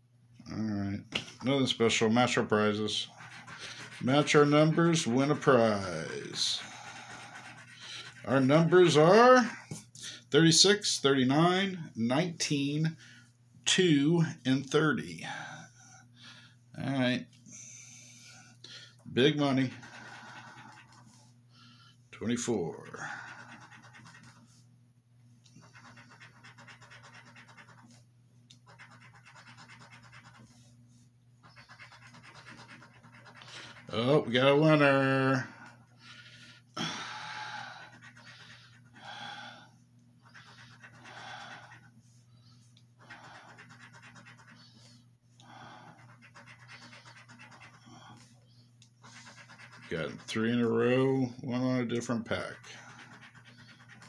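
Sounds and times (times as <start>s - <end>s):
coin scratching a lottery ticket: 1.9s - 9.2s, 19.3s - 21.2s, 22.3s - 24.5s, 25.6s - 28.0s, 28.6s - 30.7s, 31.4s - 34.8s, 37.8s - 39.0s, 40.2s - 41.9s, 43.0s - 44.8s, 45.8s - 48.2s, 49.0s - 50.7s, 52.0s - 54.0s.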